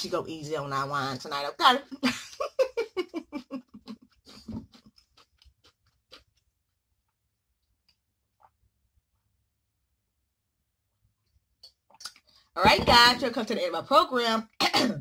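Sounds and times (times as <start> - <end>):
woman laughing: 1.9 - 4.4.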